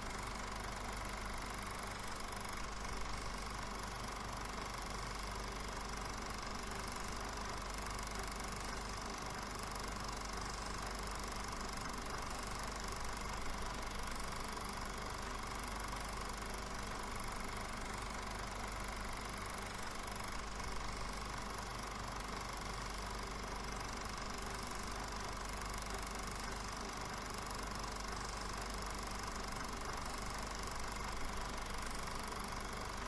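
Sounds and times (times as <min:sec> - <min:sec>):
film projector whirring: 0:00.0 - 0:33.0.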